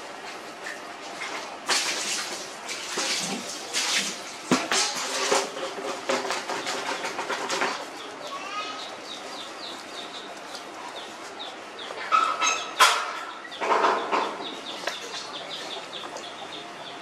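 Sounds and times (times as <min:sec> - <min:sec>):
loud full bird calls: 0:06.1 - 0:17.0
birds chirping: 0:06.3 - 0:17.0.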